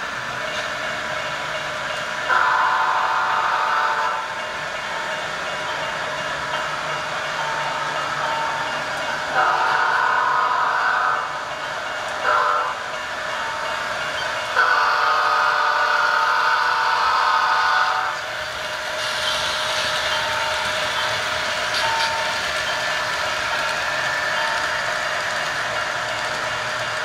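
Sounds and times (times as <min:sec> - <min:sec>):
model train rolling: 0:00.0 - 0:27.0
model locomotive horn blasts: 0:02.3 - 0:04.3, 0:09.3 - 0:11.4, 0:12.2 - 0:12.8, 0:14.6 - 0:18.2.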